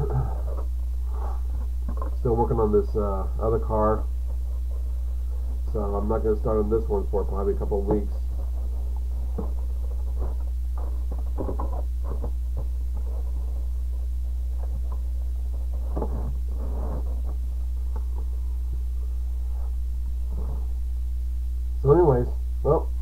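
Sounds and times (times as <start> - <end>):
low electrical hum: 0.0 - 23.0
knocks and rustles of handling: 7.4 - 18.8.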